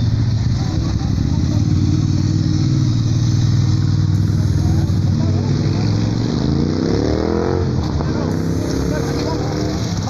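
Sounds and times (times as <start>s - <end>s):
vehicle engine idling: 0.0s - 6.4s
faint voices: 0.1s - 10.0s.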